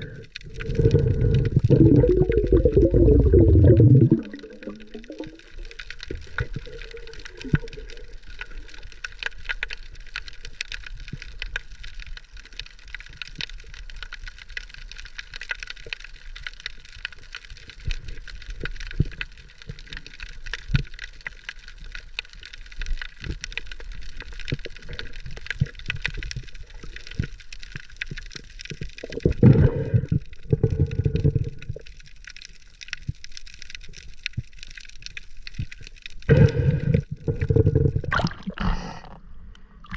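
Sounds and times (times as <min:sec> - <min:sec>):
low water rushes: 0:00.0 - 0:05.7
underwater crackle of clicks: 0:00.0 - 0:38.6.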